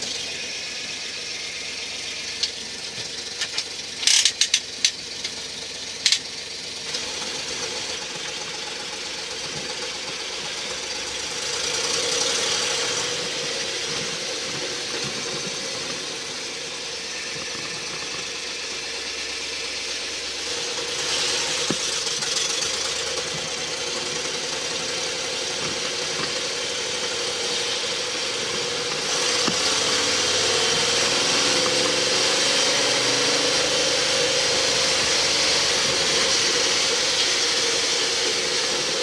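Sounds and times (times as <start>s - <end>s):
truck engine running: 0.0s - 39.0s
sharp clicks and knocks: 2.4s - 5.4s, 6.0s - 6.3s.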